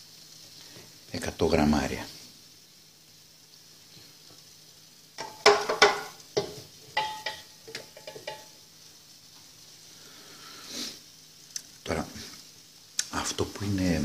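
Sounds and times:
metal pot clattering against pan: 5.2s - 8.6s.

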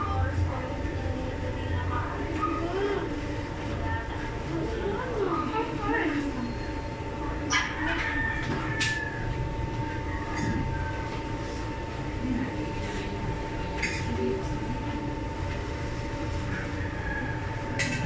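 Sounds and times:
machinery low rumble and whine: 0.0s - 18.0s.

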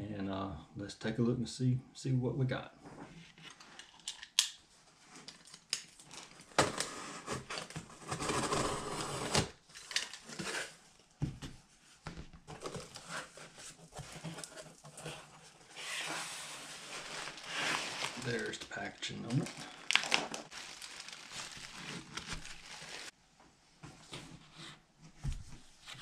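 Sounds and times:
cardboard flaps scraping and rustling: 6.6s - 9.6s, 12.5s - 23.1s.

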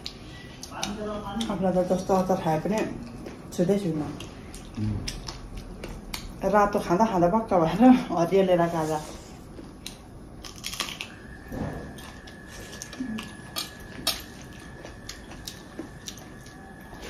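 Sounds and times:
chewing crunches: 2.7s - 6.4s, 9.4s - 17.0s.

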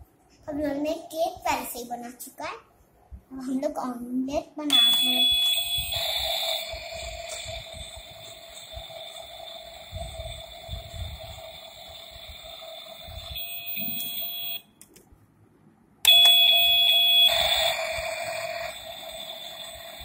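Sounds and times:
steady electronic tone: 4.7s - 14.8s, 16.1s - 20.0s
hissing sizzle sound effect: 5.0s - 14.6s, 16.6s - 20.0s.

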